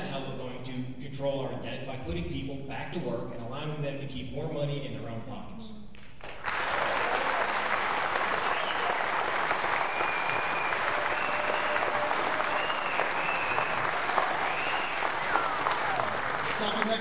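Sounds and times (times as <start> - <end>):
audience applauding: 6.2 - 17.0.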